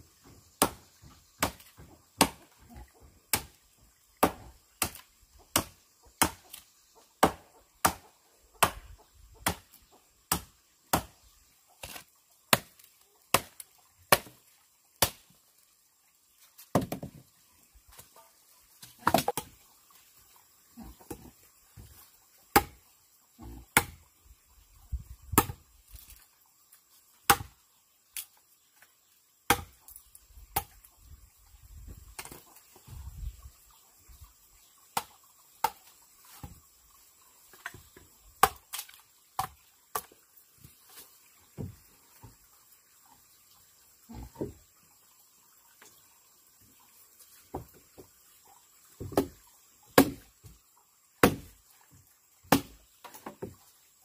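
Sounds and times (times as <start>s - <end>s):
blade chopping wood: 0.6s - 2.4s, 3.3s - 3.6s, 4.2s - 6.6s, 7.2s - 8.0s, 8.6s - 9.7s, 10.3s - 11.2s, 11.8s - 14.4s, 19.0s - 19.5s, 22.5s - 22.8s, 23.8s - 24.0s, 25.3s - 25.6s, 27.3s - 27.5s, 29.5s - 29.8s, 37.6s - 40.1s, 49.0s - 49.4s, 50.0s - 50.3s, 51.2s - 51.5s, 52.5s - 53.5s.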